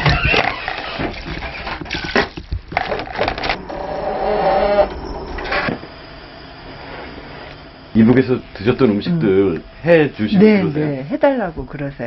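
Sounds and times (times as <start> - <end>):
wavering pitched sound: 3.4 - 6.0.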